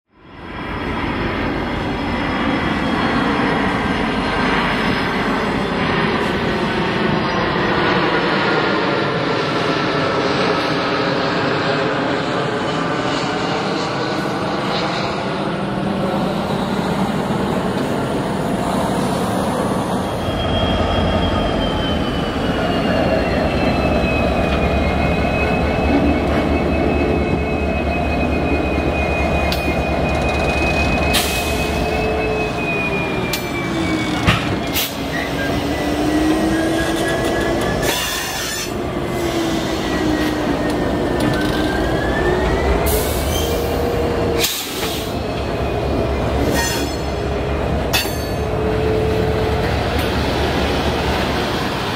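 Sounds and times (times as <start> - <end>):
diesel locomotive engine: 0.1 - 51.9
wheel flanges squealing: 19.4 - 50.2.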